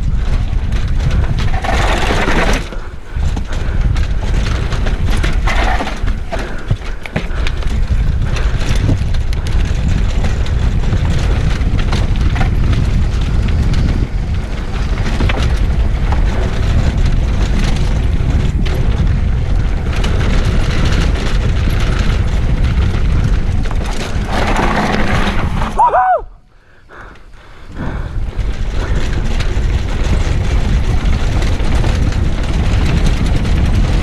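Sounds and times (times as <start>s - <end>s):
wind rumble on microphone: 0.0s - 34.0s
bike clattering over stone paving: 0.1s - 26.2s.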